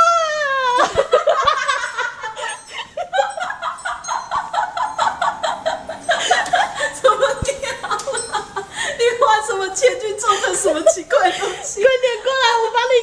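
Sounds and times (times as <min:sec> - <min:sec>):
woman laughing hard: 0:00.2 - 0:11.8.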